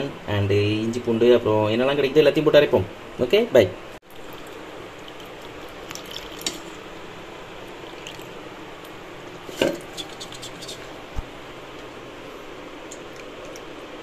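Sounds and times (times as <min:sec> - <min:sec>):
wet leaves squishing and dripping: 0:04.0 - 0:06.8, 0:07.7 - 0:09.0.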